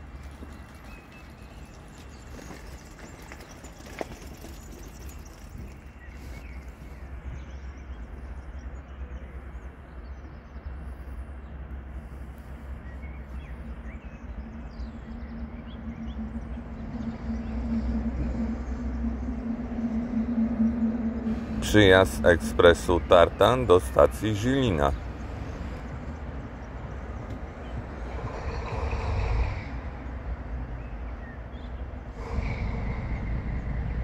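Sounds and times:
birds chirping: 0.0 - 34.0
electric locomotive hum: 0.0 - 34.0
low rumble: 0.0 - 34.0.

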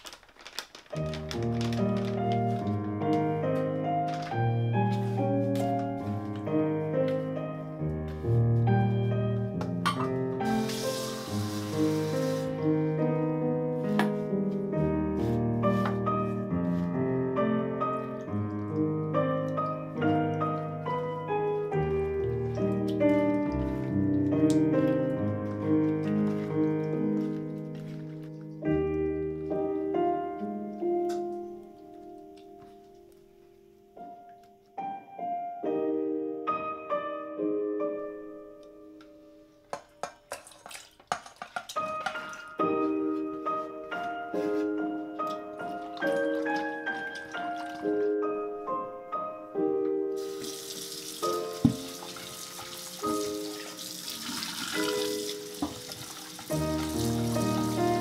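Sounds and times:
slow solo piano music: 0.9 - 40.0, 41.7 - 58.0
water running into a steel sink: 10.4 - 12.5, 50.2 - 58.0
kitchen tap turned on: 50.2 - 57.8.

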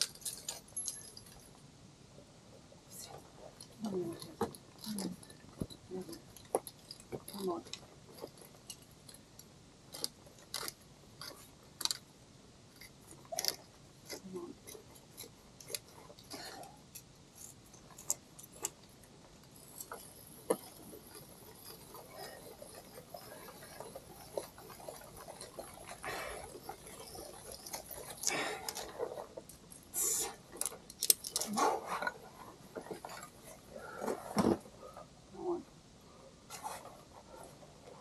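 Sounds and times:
climbing gear clinking: 0.0 - 1.6, 3.0 - 9.3, 9.9 - 12.1, 12.8 - 35.0.

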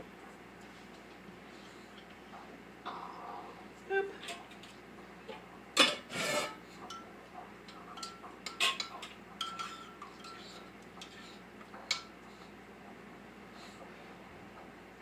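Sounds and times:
spoon clinking in ceramic mug: 8.0 - 10.5.

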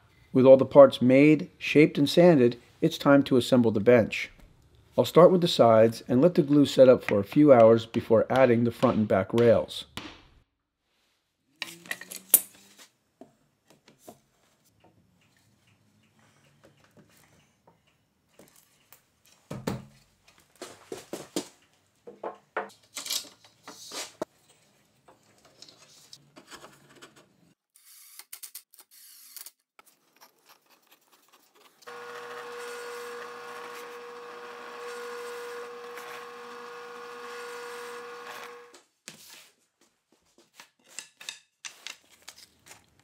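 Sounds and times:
drill press humming and whining: 31.8 - 38.8.

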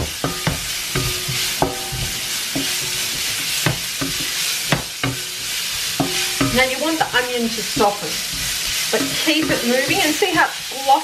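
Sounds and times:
onions sizzling in oil: 0.0 - 11.0
wooden spoon knocking and scraping pan: 0.0 - 11.0
pan ringing tone: 0.3 - 3.3.

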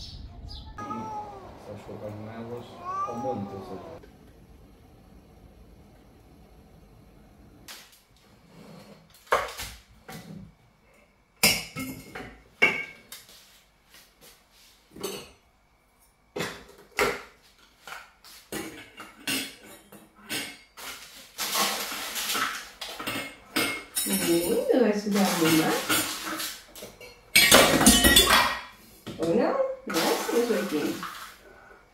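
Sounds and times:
metal spoon clinking on metal tin: 23.1 - 24.7, 27.0 - 28.6.

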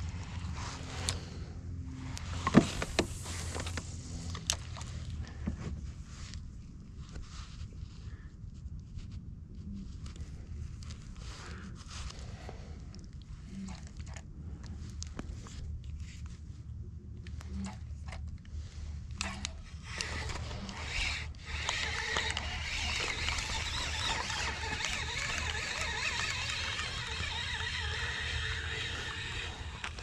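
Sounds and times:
steady low rumble: 0.0 - 30.0
small clicks and creaks: 9.8 - 30.0.

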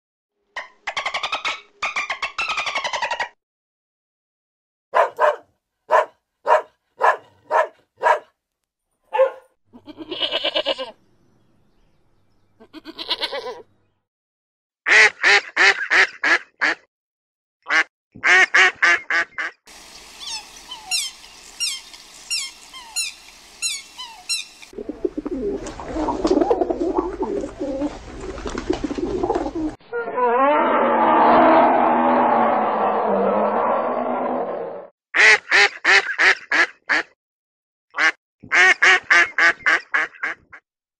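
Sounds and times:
geese honking: 18.3 - 24.7
high falling chirps: 19.7 - 24.8
pigeons cooing: 23.9 - 29.8.

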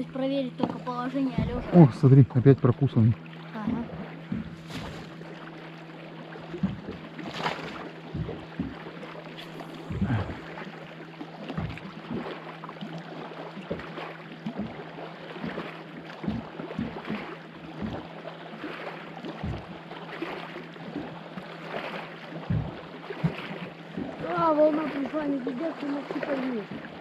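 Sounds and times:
steady low hum: 0.0 - 27.0
waves slapping boat hull: 0.0 - 27.0.

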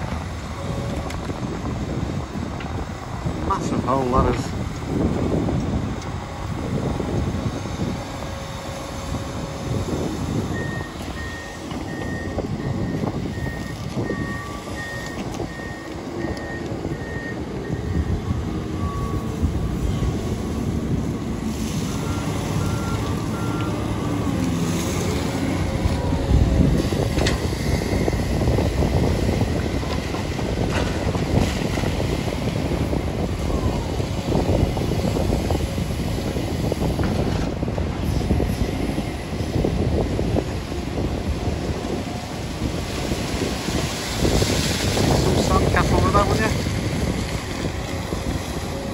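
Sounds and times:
diesel excavator engines rumbling: 0.0 - 48.9
reversing alarm beeping: 10.4 - 20.2, 21.7 - 24.4.

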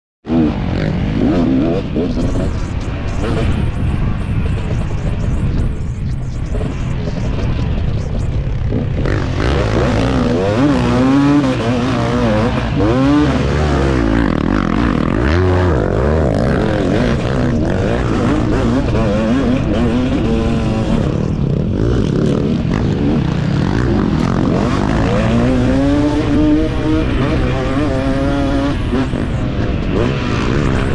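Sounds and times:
motocross bike engine revving: 0.3 - 30.9.

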